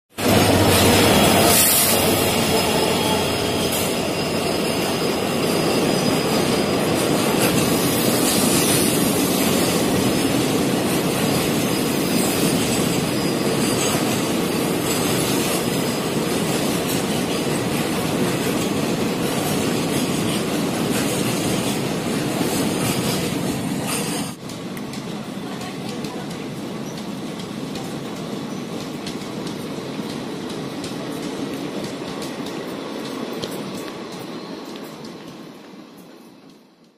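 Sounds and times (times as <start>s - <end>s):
diesel locomotive passing: 0.1s - 36.9s
train wheels rumbling on rails: 0.1s - 36.9s
high wheel squeal: 0.2s - 9.0s, 11.6s - 16.2s.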